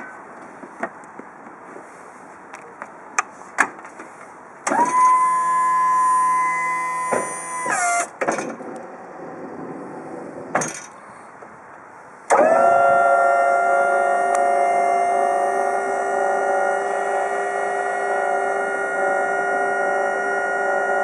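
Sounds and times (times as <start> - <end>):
hydraulic pump motor whining: 4.6 - 9.4, 12.3 - 21.0.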